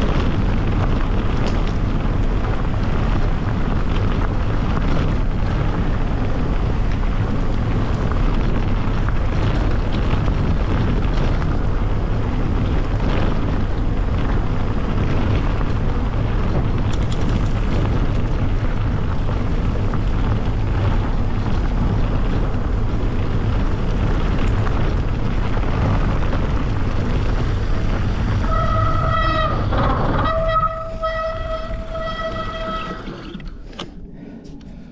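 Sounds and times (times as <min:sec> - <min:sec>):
wind rush and rumble: 0:00.0 - 0:34.9
high-pitched squeal: 0:28.4 - 0:33.5.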